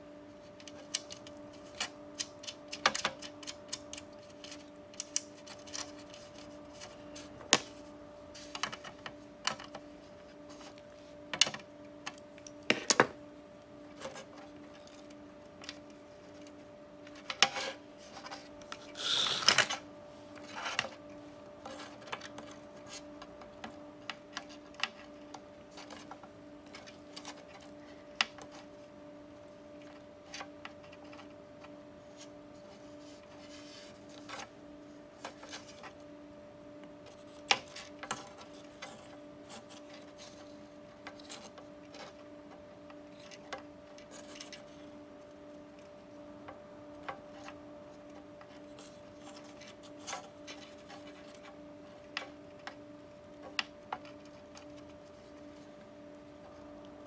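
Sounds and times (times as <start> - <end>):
faint steady hum: 0.0 - 57.0
hands handling wires and parts: 0.4 - 36.1, 36.8 - 57.0.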